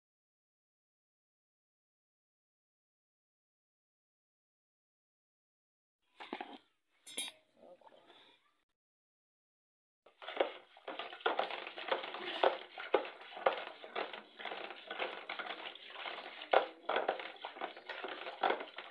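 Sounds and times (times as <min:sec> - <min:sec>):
stick knocking bucket: 0:10.1 - 0:18.9
wooden stick churning curd: 0:10.1 - 0:18.9.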